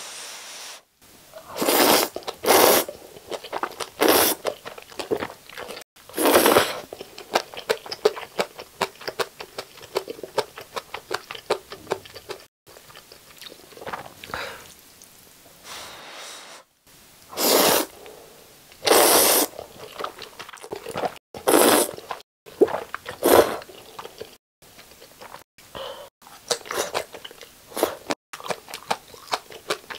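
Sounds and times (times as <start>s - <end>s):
loud noodle slurps: 1.4s - 3.0s, 4.0s - 4.5s, 6.1s - 6.9s, 17.3s - 17.9s, 18.8s - 19.6s, 21.4s - 22.1s, 23.1s - 23.7s
wet chewing: 3.2s - 15.0s, 28.4s - 29.9s.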